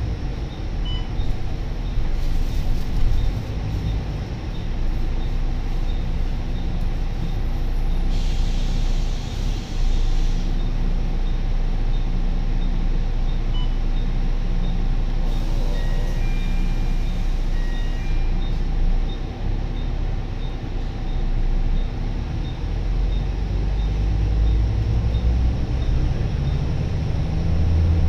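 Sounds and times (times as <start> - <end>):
bus diesel engine running: 0.0 - 28.0
compressed air hiss: 8.1 - 10.5.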